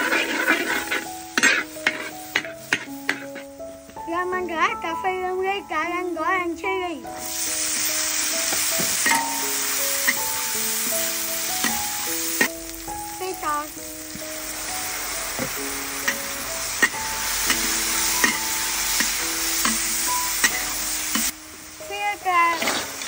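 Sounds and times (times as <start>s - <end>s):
metal spatula scraping a wok: 0.0s - 3.5s, 8.4s - 12.5s, 15.3s - 21.3s, 22.5s - 23.0s
food sizzling in a wok: 0.0s - 23.0s.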